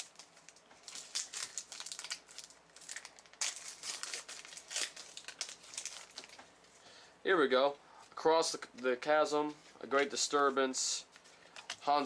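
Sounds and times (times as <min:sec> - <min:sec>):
wrapper crinkling and tearing: 0:00.0 - 0:06.4.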